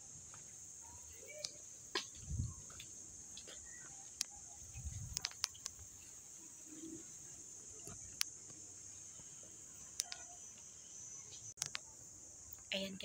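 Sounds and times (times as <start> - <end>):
insect chorus: 0.0 - 13.0
footsteps on stone path: 1.9 - 5.8.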